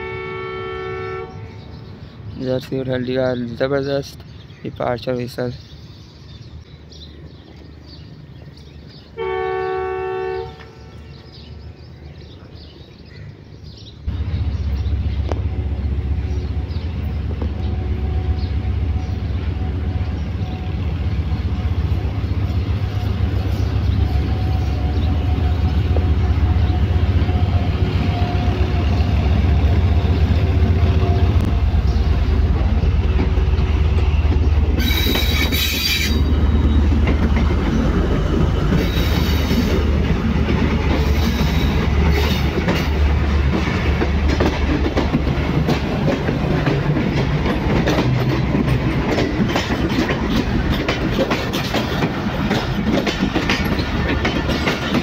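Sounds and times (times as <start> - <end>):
train horn blast: 0.0 - 1.7, 9.2 - 11.1
wheel and rail noise: 10.5 - 55.0
locomotive engine rumble: 14.0 - 55.0.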